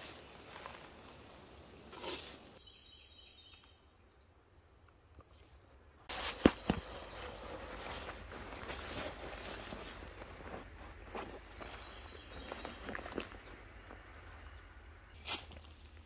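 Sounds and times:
clothing and canvas rustling: 0:06.1 - 0:14.3.

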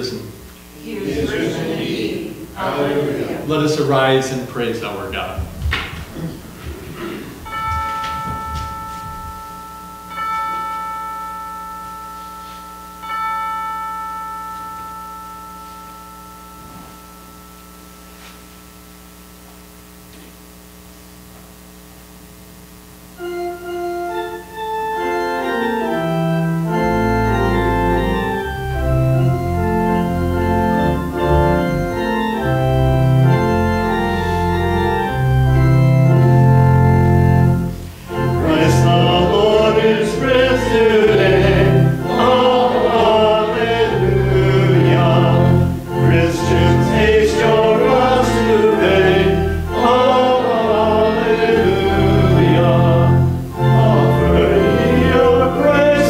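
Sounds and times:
church organ chords: 0:00.0 - 0:56.0
faint low hum: 0:00.0 - 0:56.0
bell-like tones: 0:07.5 - 0:18.3.

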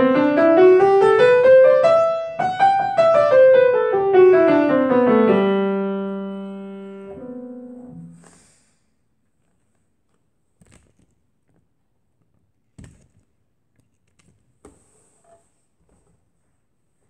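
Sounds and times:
grand piano low notes: 0:00.0 - 0:08.3.

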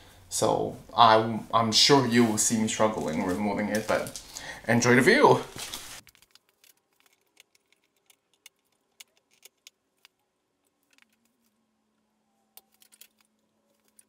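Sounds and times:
small plastic clicks and rattles: 0:06.0 - 0:11.5, 0:12.6 - 0:14.0.

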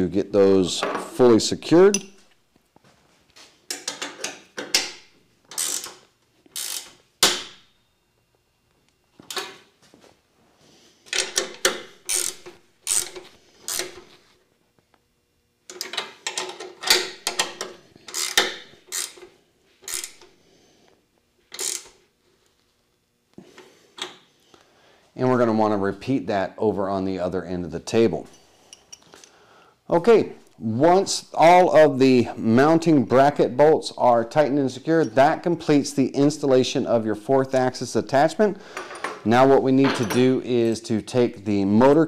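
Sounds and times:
ratchet wrench clicking: 0:05.5 - 0:06.0, 0:06.6 - 0:07.0, 0:11.1 - 0:14.0, 0:17.2 - 0:19.2, 0:19.8 - 0:20.3, 0:21.5 - 0:22.0.

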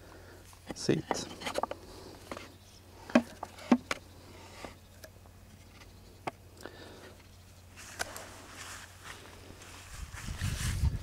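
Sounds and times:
low steady hum: 0:00.0 - 0:11.0
soft rustle: 0:07.6 - 0:11.0.

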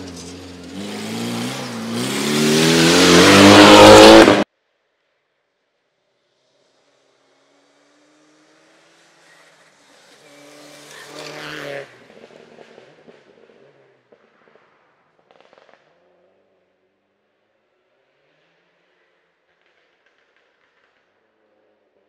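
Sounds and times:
rally car passing at speed: 0:00.0 - 0:04.5, 0:06.5 - 0:16.8.

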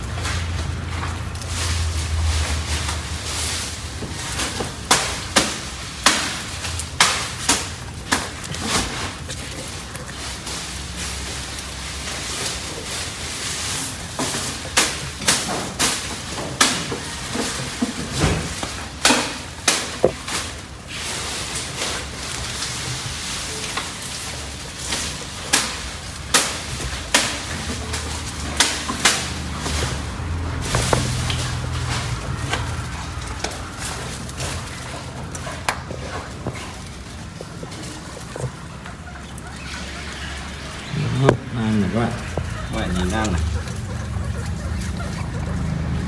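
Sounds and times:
guinea pigs crunching grass: 0:00.0 - 0:46.0.

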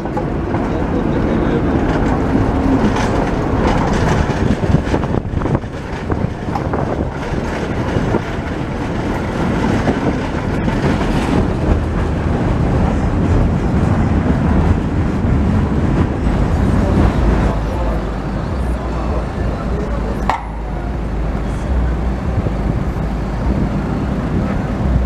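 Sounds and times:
steel wheels rumbling on rails: 0:00.0 - 0:25.0
clicks over rail joints: 0:01.8 - 0:12.4.

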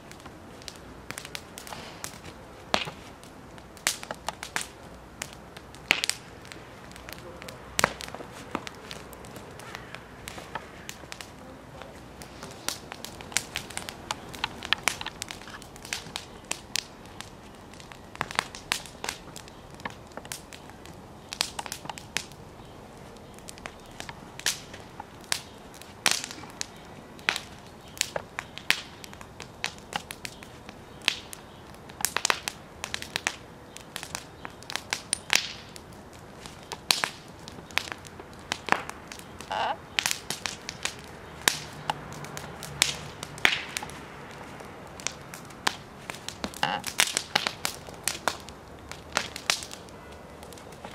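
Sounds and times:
wood fire crackling and popping: 0:00.0 - 0:50.9.

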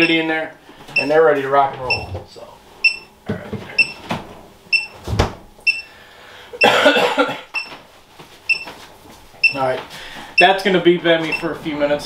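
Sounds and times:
short high alarm beeps: 0:02.8 - 0:03.1, 0:04.7 - 0:05.0, 0:05.7 - 0:05.9, 0:08.5 - 0:08.7
person coughing: 0:06.6 - 0:07.6.

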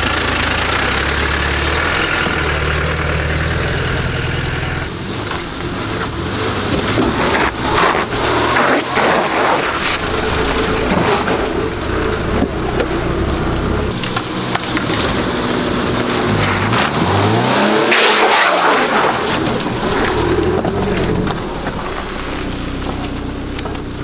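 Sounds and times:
car engine pulling slowly: 0:00.0 - 0:24.0
stones clicking under tyres: 0:04.9 - 0:24.0.

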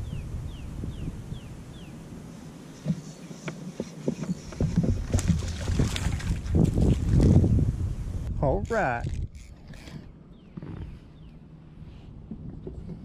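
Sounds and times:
wind rumbling on microphone: 0:00.0 - 0:13.0
fishing reel clicks and knocks: 0:08.6 - 0:10.1.

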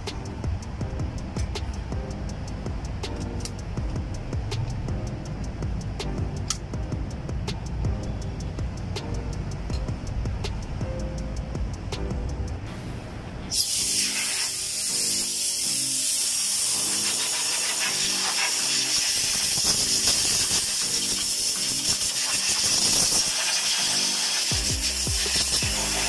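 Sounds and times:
faint background music: 0:00.0 - 0:26.0
compressed air blow gun hissing: 0:13.5 - 0:26.0.

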